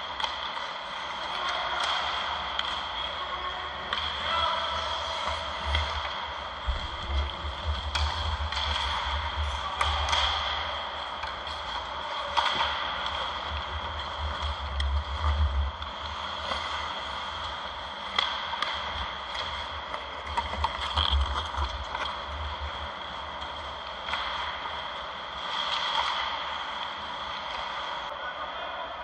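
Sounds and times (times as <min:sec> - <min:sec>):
hockey sticks and puck clacking: 0:00.0 - 0:28.1
low rumble: 0:05.6 - 0:09.8.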